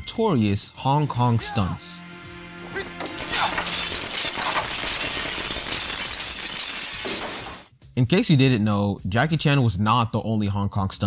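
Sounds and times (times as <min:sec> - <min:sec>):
glass shattering: 0:03.0 - 0:07.7
light bulbs bursting and sparking: 0:03.0 - 0:07.7.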